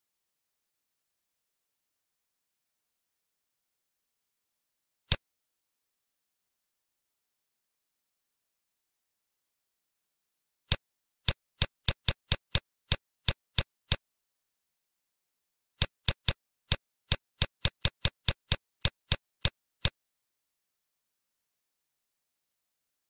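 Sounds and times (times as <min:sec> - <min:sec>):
keyboard typing clicks: 0:10.7 - 0:14.0, 0:15.8 - 0:20.0.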